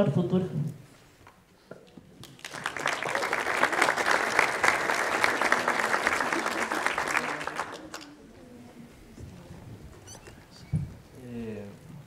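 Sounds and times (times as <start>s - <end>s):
audience clapping: 2.2s - 8.2s.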